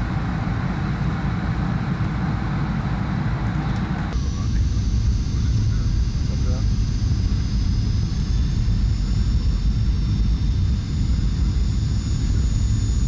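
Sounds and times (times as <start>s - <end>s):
airliner cabin rumble: 0.0s - 13.0s
jet engines whining: 0.0s - 13.0s.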